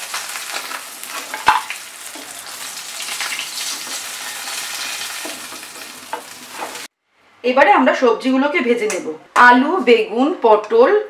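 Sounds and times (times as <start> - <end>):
oil sizzling: 0.0 - 6.9.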